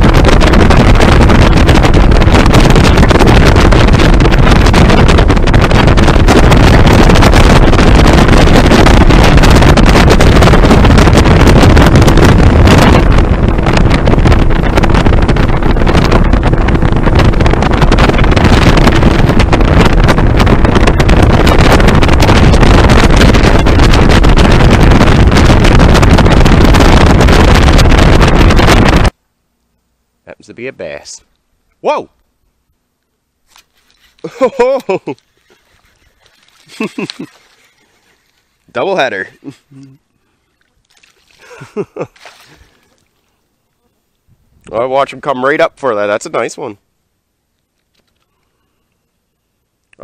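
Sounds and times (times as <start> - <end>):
motorboat motor: 0.0 - 29.1
wind buffeting microphone: 0.0 - 29.2, 33.9 - 39.7, 40.4 - 43.5, 44.2 - 45.8.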